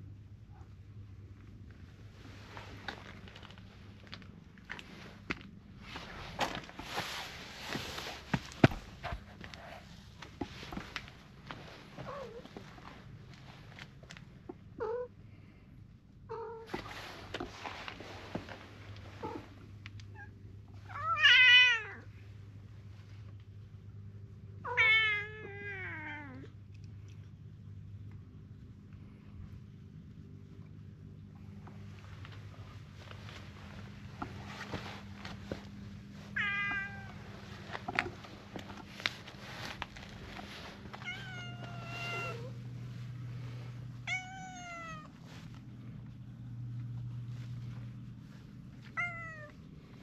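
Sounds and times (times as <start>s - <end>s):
low steady hum: 0.0s - 50.0s
cat meowing: 20.9s - 22.1s, 36.3s - 37.2s, 41.0s - 42.6s, 44.0s - 45.1s, 49.0s - 49.6s.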